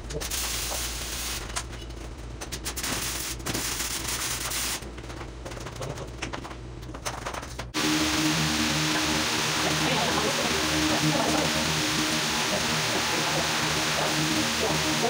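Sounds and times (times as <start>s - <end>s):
welding arc crackling: 0.0s - 5.8s, 7.8s - 15.0s
steady low hum: 4.8s - 15.0s.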